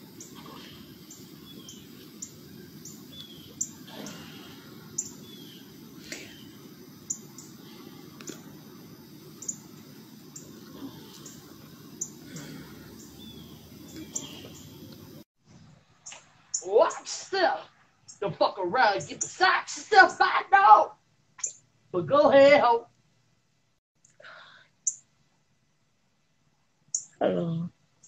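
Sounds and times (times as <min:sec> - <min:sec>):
small birds chirping: 0:00.0 - 0:19.5, 0:21.4 - 0:21.7, 0:26.9 - 0:27.5.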